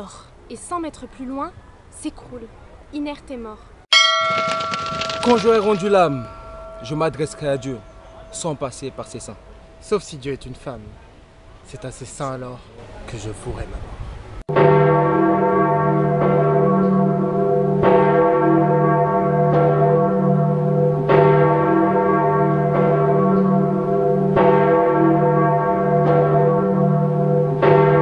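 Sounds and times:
church bells tolling: 3.9 - 12.2, 14.5 - 28.0.

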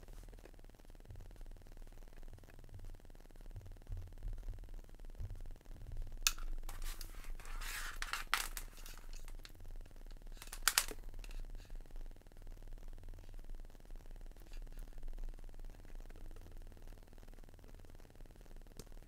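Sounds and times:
cable rustling: 5.2 - 9.6, 10.3 - 11.5
plastic plug connectors clicking: 10.4 - 11.0.

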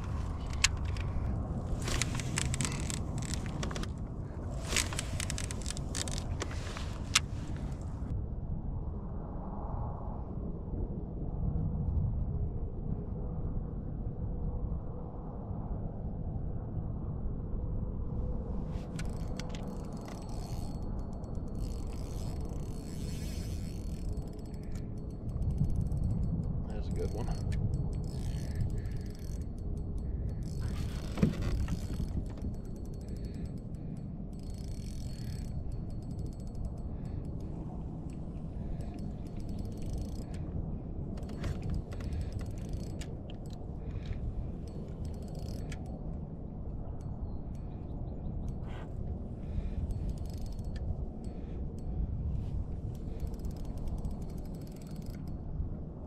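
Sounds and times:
fishing reel clicking: 0.0 - 4.0, 4.6 - 7.8, 18.8 - 40.5, 41.2 - 46.0, 49.4 - 52.2, 52.8 - 55.5.

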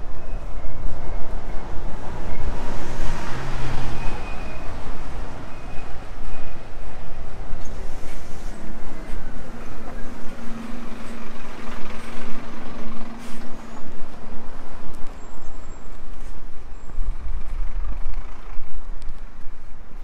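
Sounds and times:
deep engine rumble: 0.0 - 20.0
heavy vehicle engine running: 0.0 - 20.0.

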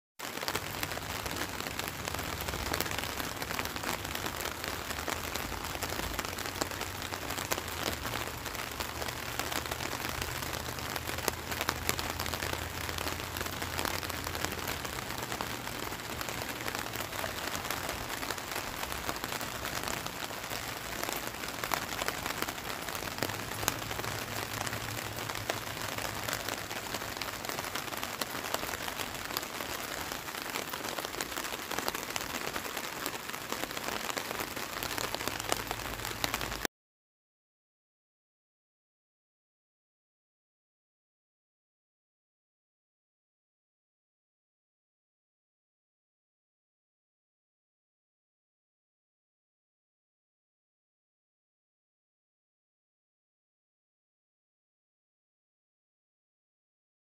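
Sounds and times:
light rain falling: 0.2 - 36.7.

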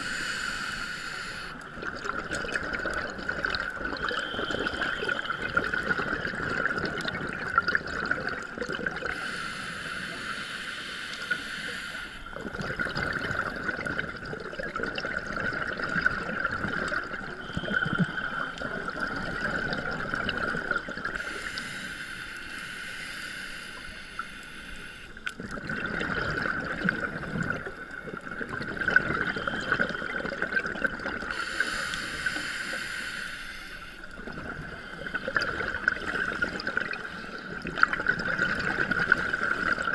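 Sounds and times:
hissing regulator inhales: 0.0 - 1.6, 9.1 - 12.4, 21.2 - 25.2, 31.3 - 37.5
bubbling exhale gurgle: 0.0 - 21.8, 25.2 - 32.8, 34.0 - 39.9.

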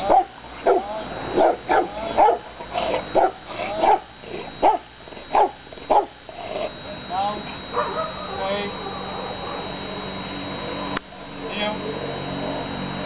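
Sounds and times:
dog barking: 0.0 - 2.5, 3.2 - 6.1, 7.7 - 9.7.

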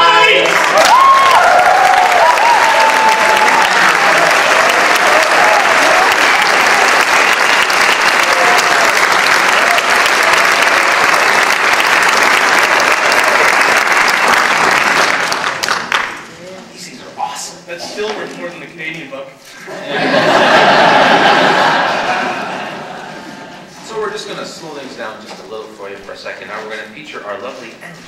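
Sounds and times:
people cheering: 0.0 - 15.9, 19.8 - 23.5
audience applauding: 0.0 - 16.3, 19.9 - 23.6.

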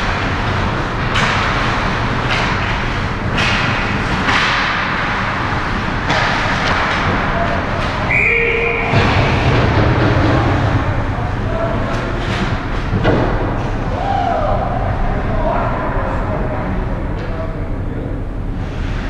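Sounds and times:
stick and puck knocks: 1.0 - 5.2
whistle blast: 8.1 - 9.0.

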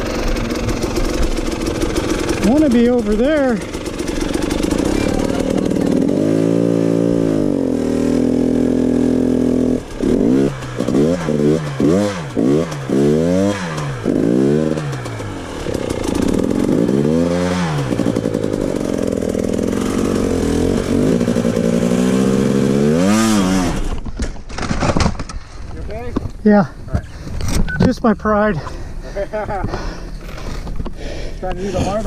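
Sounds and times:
dirt bike engine revving: 0.0 - 24.0.

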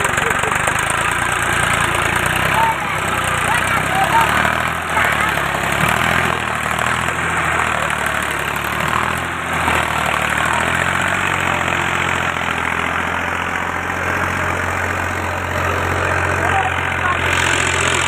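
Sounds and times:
diesel tractor engine running: 0.0 - 18.0.

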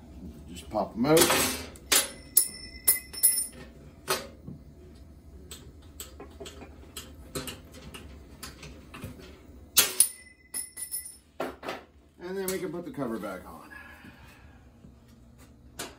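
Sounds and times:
sheet metal ringing: 9.8 - 11.1.

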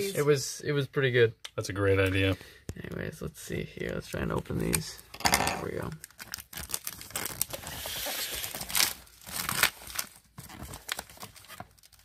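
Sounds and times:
plastic shrink-wrap tearing: 5.8 - 12.0.

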